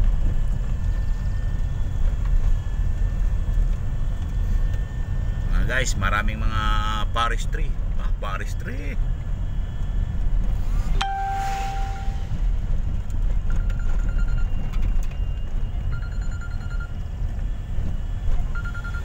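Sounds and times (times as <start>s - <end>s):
van engine and tyres rumbling: 0.0s - 19.0s
chime ringing: 11.0s - 12.6s.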